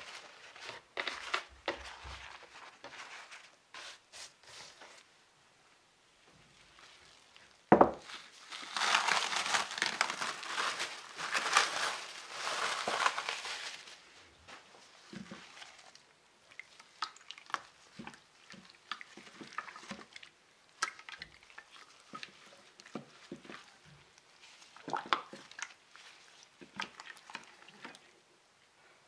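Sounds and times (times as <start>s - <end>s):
crinkling rustle: 0.0s - 5.1s, 6.3s - 28.2s
ceramic dish knocking on wood: 7.7s - 8.0s
wet squelches and slaps: 16.5s - 23.8s, 24.4s - 28.0s.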